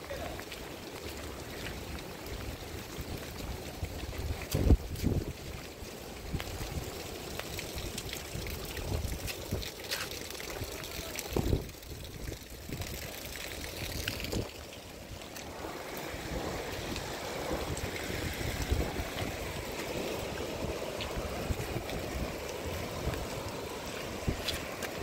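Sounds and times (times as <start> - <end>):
heavy rain: 0.0 - 25.0
rainwater running across ground: 0.0 - 25.0
wind buffeting microphone: 2.6 - 6.9, 10.6 - 14.6, 16.2 - 25.0.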